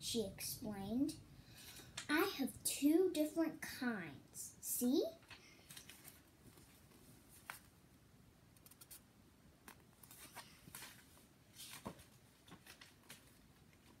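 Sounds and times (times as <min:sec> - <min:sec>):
book pages rustling: 0:05.3 - 0:07.8, 0:09.6 - 0:14.0.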